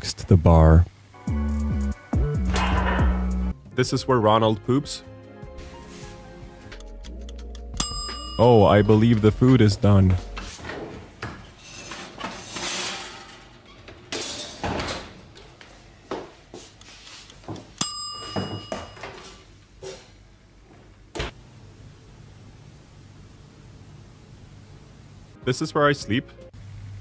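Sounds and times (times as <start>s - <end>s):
oven door clunks and knocks: 2.4s - 3.3s.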